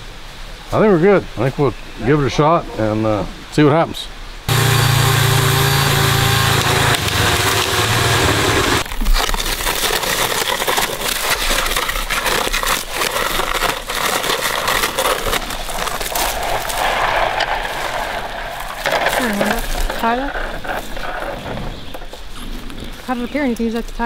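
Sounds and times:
small motor running: 0:04.5 - 0:08.8.

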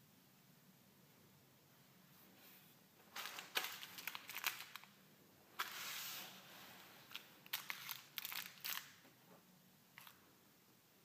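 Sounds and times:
plastic wrapping crinkling and tearing: 0:03.1 - 0:05.0, 0:07.0 - 0:09.0.

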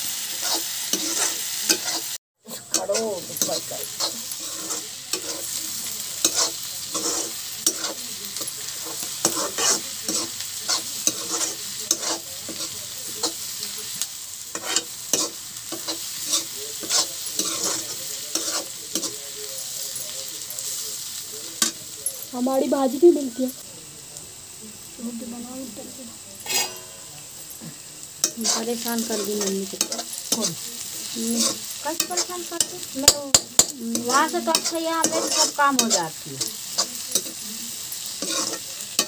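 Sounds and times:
onions and potatoes sizzling in oil: 0:00.0 - 0:39.0
spatula scraping pan: 0:00.2 - 0:13.4, 0:14.5 - 0:19.2, 0:26.4 - 0:37.4, 0:38.0 - 0:39.0.

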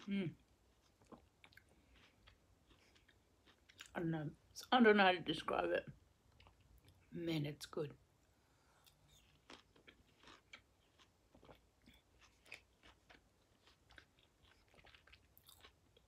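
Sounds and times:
wet chewing crunches: 0:08.9 - 0:16.0.

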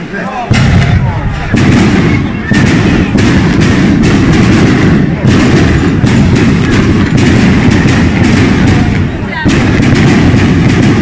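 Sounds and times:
firecrackers going off: 0:00.0 - 0:11.0.

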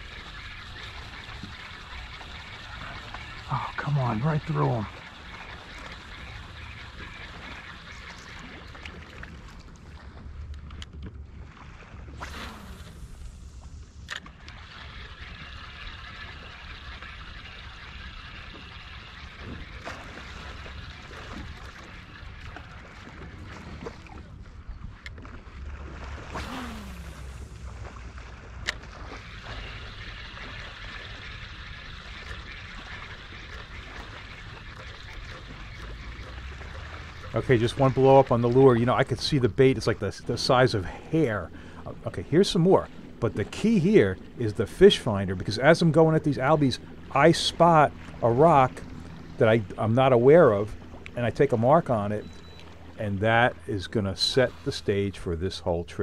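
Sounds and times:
faint clicks and ticks: 0:00.0 - 0:11.2
soft water sounds: 0:00.0 - 0:56.0
fishing line cast swish: 0:12.1 - 0:13.4, 0:26.2 - 0:27.5
fishing reel cranking: 0:14.0 - 0:22.4.

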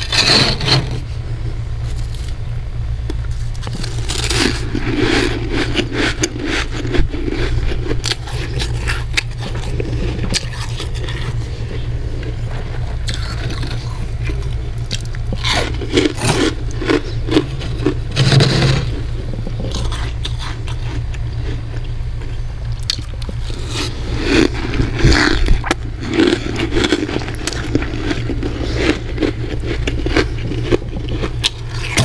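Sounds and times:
metal spoon scraping frost: 0:00.0 - 0:01.2, 0:03.3 - 0:14.6, 0:15.4 - 0:20.9
steady low hum: 0:00.0 - 0:32.0.

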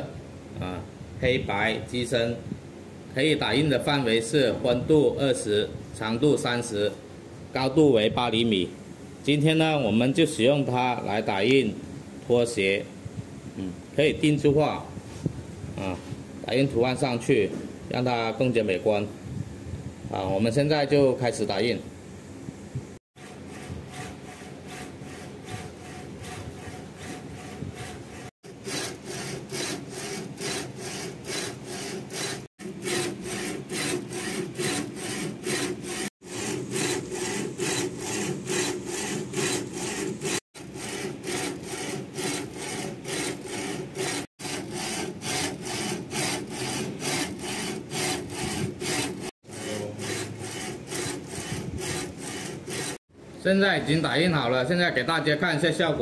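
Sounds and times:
motor hum: 0:23.2 - 0:53.0.

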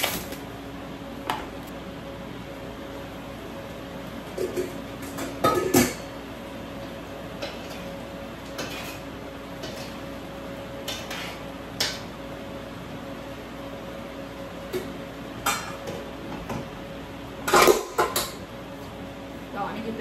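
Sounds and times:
dishes and utensils clattering: 0:04.3 - 0:06.1, 0:08.5 - 0:10.0, 0:15.4 - 0:16.6, 0:17.4 - 0:18.4.

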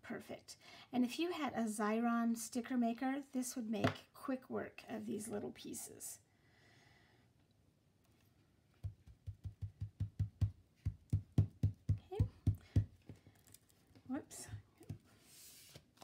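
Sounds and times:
fingers patting cardstock on table: 0:08.8 - 0:13.2.

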